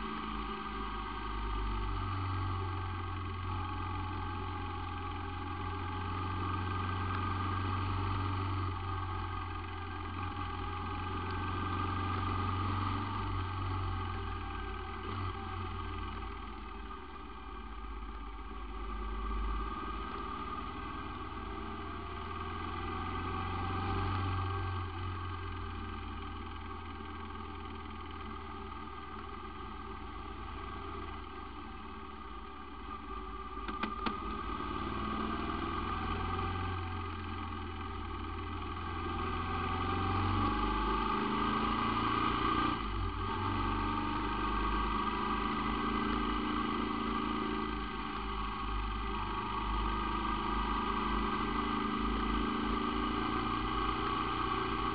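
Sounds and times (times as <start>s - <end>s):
motorcycle engine cruising: 0.0s - 54.9s.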